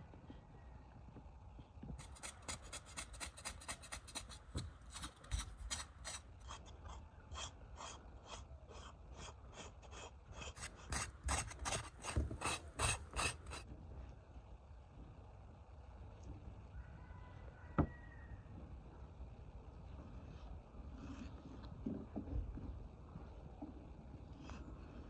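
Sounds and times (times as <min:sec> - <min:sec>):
knife scraping raw meat: 0:02.0 - 0:13.6.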